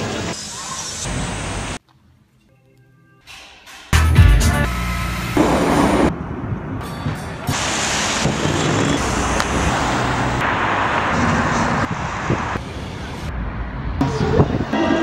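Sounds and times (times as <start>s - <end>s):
passing traffic hiss: 7.5s - 13.3s.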